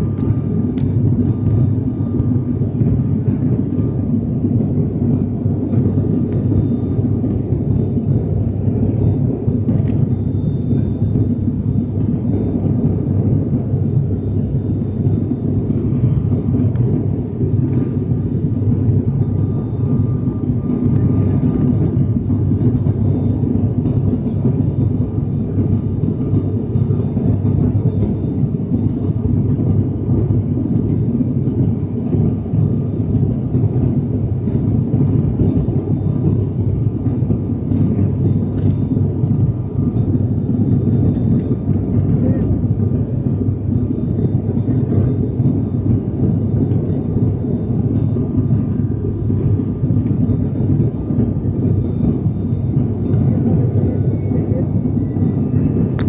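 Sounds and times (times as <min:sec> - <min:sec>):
faint high whine: 0:00.0 - 0:56.0
turboprop engine drone: 0:00.0 - 0:56.0.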